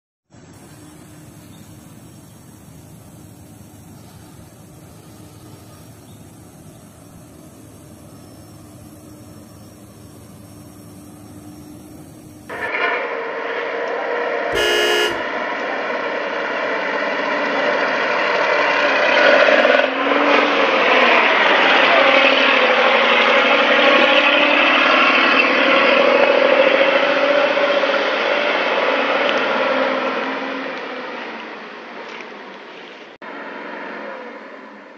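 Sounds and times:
truck diesel engine running: 0:00.4 - 0:12.7, 0:14.5 - 0:15.4
truck horn blast: 0:14.5 - 0:15.5.

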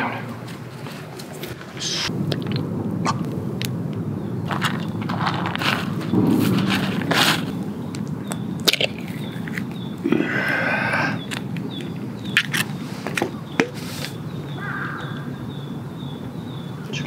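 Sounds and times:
low outdoor rumble: 0:00.0 - 0:17.0
seaweed flakes rustling: 0:04.5 - 0:07.8.

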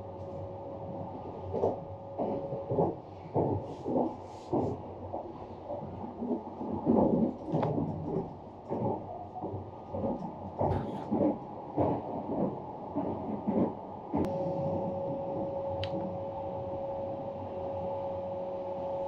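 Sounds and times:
train cabin rumble: 0:00.0 - 0:19.0
dull knocks of train: 0:01.6 - 0:14.3.

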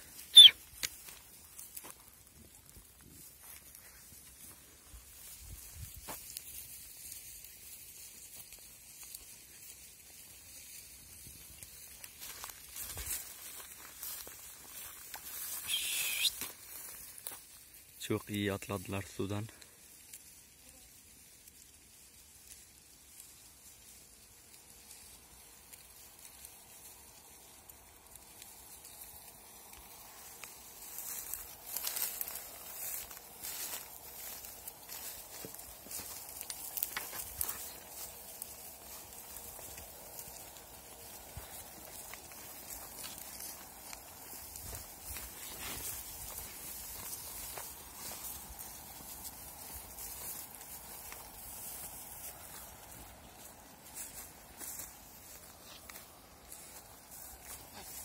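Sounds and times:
footsteps through dry grass: 0:00.0 - 0:58.0
steady high hiss: 0:24.5 - 0:58.0.

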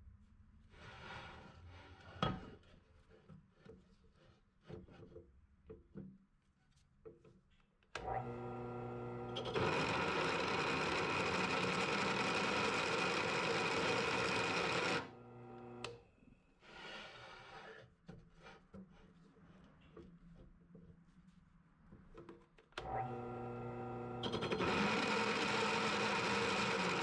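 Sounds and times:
drill press motor: 0:08.0 - 0:16.0, 0:22.8 - 0:27.0.

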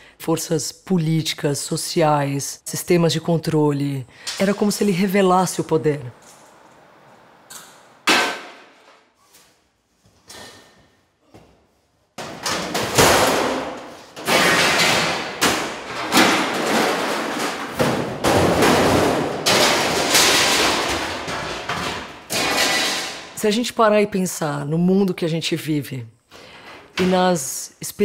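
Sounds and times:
scrap steel crashing into pile: 0:12.4 - 0:23.4.

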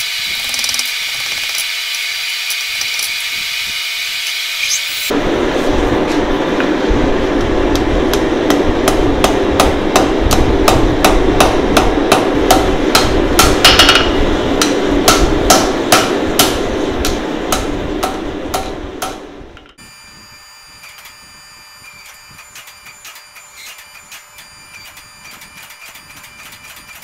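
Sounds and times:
steady rushing noise: 0:05.1 - 0:19.6
hammer striking steel on anvil: 0:07.7 - 0:19.3.

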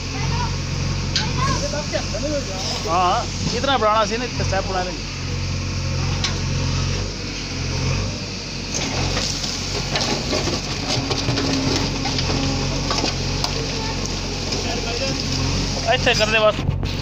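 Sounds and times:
diesel engine running: 0:00.0 - 0:17.0
stones clattering against bucket: 0:08.8 - 0:15.4.

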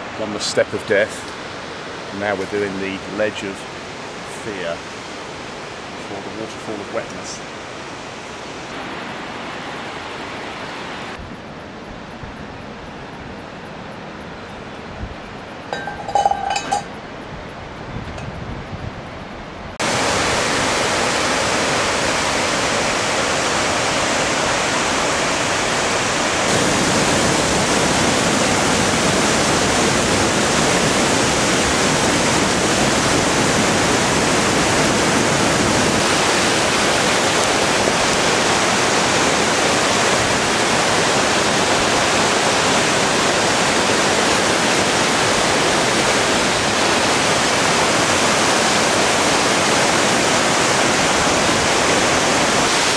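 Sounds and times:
waterfall rushing: 0:19.8 - 0:52.9.

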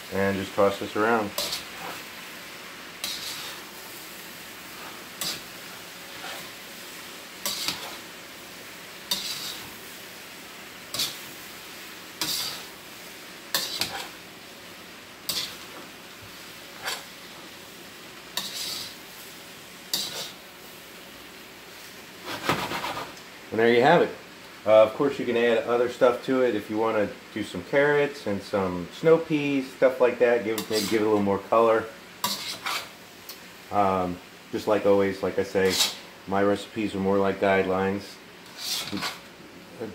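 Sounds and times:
faint sizzle: 0:00.0 - 0:39.9
spatula scraping pan: 0:00.6 - 0:02.3, 0:03.0 - 0:08.2, 0:09.0 - 0:10.0, 0:10.9 - 0:14.3, 0:15.2 - 0:17.6, 0:18.3 - 0:19.2, 0:19.9 - 0:20.4, 0:22.2 - 0:23.2, 0:30.4 - 0:31.3, 0:32.2 - 0:33.0, 0:35.6 - 0:36.1, 0:38.4 - 0:39.3.

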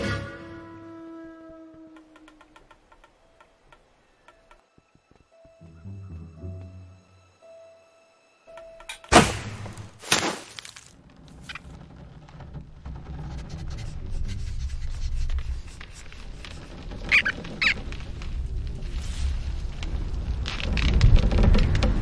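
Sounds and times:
low rumbling: 0:11.0 - 0:22.0
short high squeaks: 0:16.4 - 0:17.9.

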